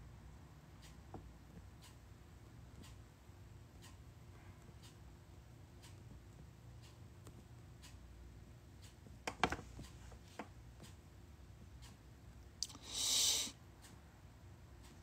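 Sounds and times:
soft clicks and taps: 0:08.8 - 0:11.0
short hissing rustle: 0:12.6 - 0:13.6.

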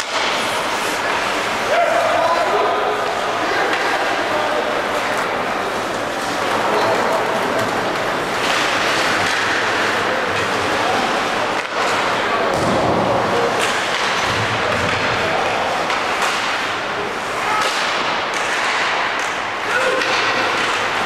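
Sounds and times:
crowd and rink din: 0:00.0 - 0:21.0
hockey sticks and puck knocking: 0:04.9 - 0:21.0.

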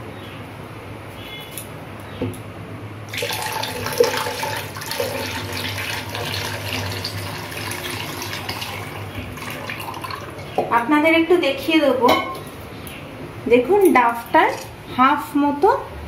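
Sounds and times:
water pouring and splashing: 0:03.1 - 0:10.5.

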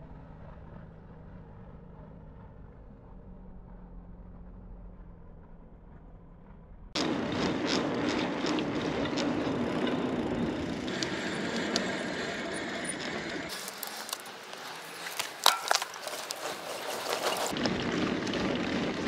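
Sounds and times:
bike clicks and rattles: 0:07.0 - 0:19.0
bike tyre and wind noise: 0:07.0 - 0:19.0.

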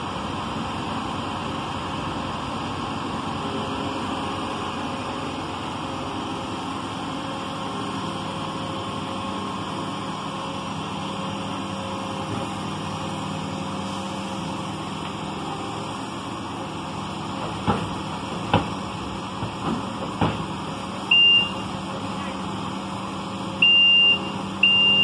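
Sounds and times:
diesel engines idling: 0:00.0 - 0:25.0
loud high beep: 0:21.1 - 0:21.6, 0:23.6 - 0:25.0.

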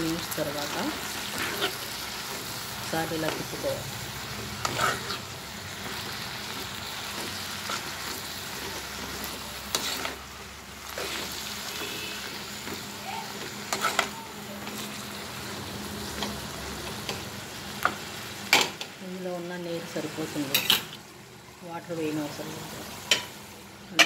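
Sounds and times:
vegetables sizzling in a pot: 0:00.0 - 0:24.0
metal spoon stirring: 0:04.6 - 0:10.3, 0:12.6 - 0:15.0.

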